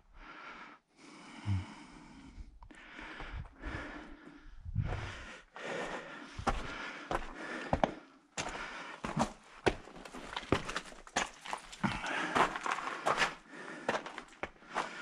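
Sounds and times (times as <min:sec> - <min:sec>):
footsteps on gravel and rock: 0:04.8 - 0:15.0.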